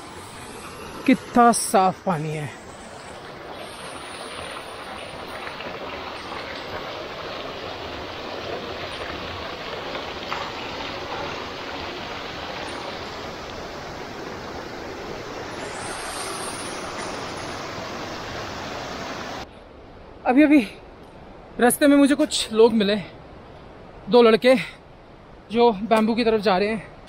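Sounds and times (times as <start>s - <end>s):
rushing stream water: 0.0s - 19.5s.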